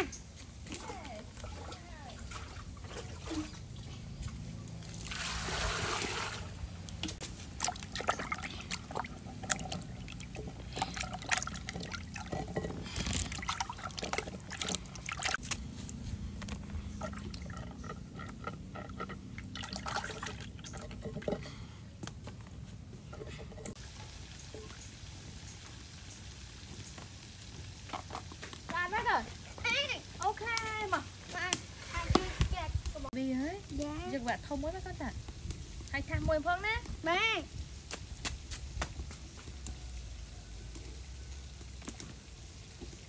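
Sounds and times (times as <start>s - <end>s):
water splashing and dripping: 0.0s - 16.0s, 17.0s - 21.4s, 33.0s - 43.0s
water pouring into a basin: 4.8s - 6.6s, 7.5s - 15.4s, 19.4s - 20.9s.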